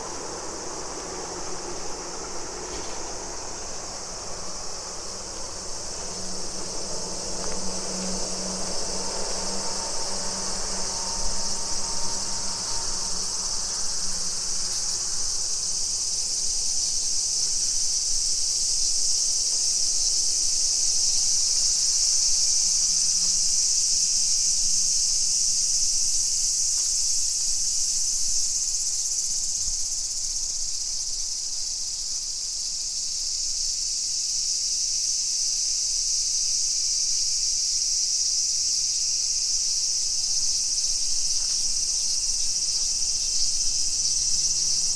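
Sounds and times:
low street noise: 0:00.0 - 0:28.9
shrill insect chorus: 0:00.0 - 0:44.9.

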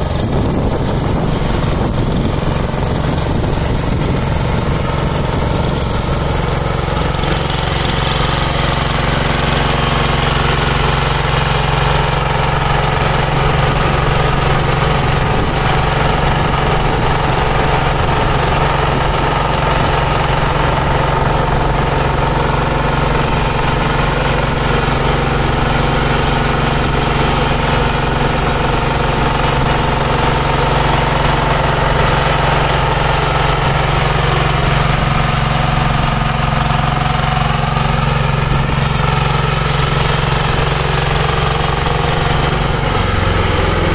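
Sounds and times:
diesel engine running under load: 0:00.0 - 0:43.9
rotary tiller churning soil: 0:00.0 - 0:43.9.

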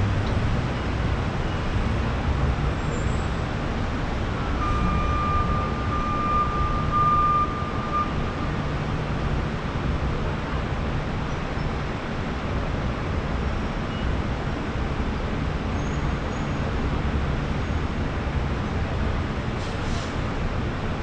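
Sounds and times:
city traffic noise: 0:00.0 - 0:21.0.

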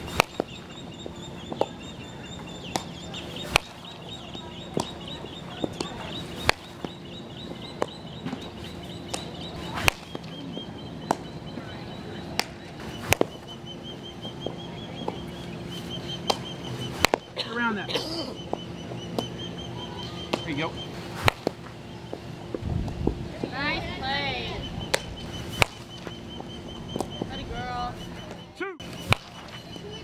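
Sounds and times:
bat striking balls: 0:00.0 - 0:17.5, 0:18.3 - 0:23.1, 0:24.8 - 0:27.5, 0:28.2 - 0:29.8
birds chattering: 0:00.0 - 0:30.0
balls smacking into gloves: 0:00.1 - 0:00.6, 0:02.7 - 0:03.8, 0:04.7 - 0:05.0, 0:05.6 - 0:07.0, 0:09.1 - 0:10.3, 0:12.4 - 0:13.4, 0:16.2 - 0:17.3, 0:21.2 - 0:22.2, 0:24.9 - 0:26.1, 0:29.0 - 0:29.6.

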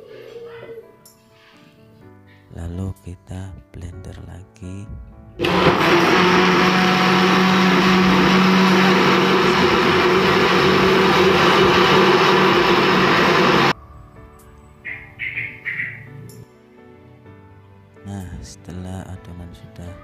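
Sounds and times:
blender whirring: 0:05.4 - 0:13.8.

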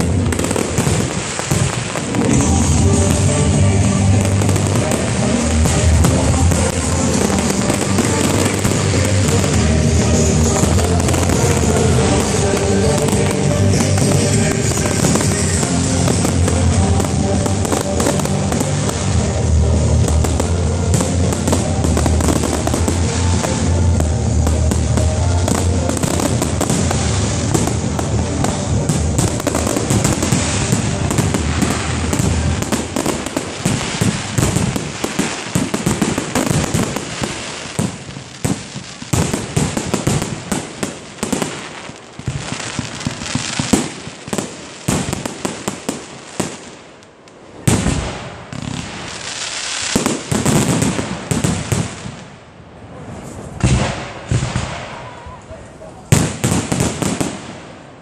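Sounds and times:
fireworks bursting and crackling: 0:00.0 - 0:58.0
sharp firework bang: 0:53.6 - 0:55.2.

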